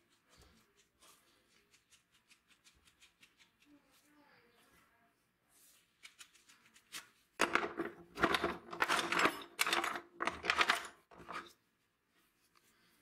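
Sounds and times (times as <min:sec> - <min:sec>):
metal tools clattering in a box: 0:07.4 - 0:11.5.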